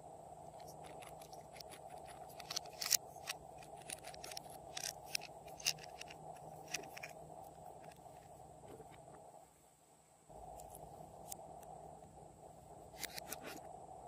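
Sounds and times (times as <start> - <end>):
faint steady hiss: 0.0 - 14.0
small bottles clicking together: 0.7 - 7.1.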